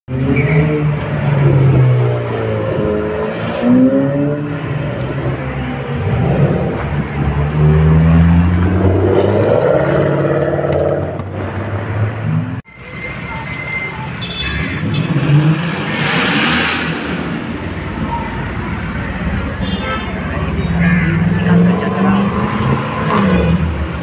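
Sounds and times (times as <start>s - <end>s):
sports car engines revving past: 0.1s - 12.5s, 14.9s - 18.0s, 20.6s - 24.0s.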